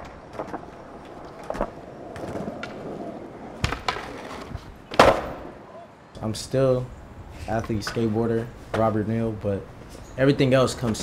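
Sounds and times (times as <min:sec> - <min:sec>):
skateboard clacks: 0:00.0 - 0:05.5
skateboard wheels rolling on concrete: 0:00.0 - 0:11.0.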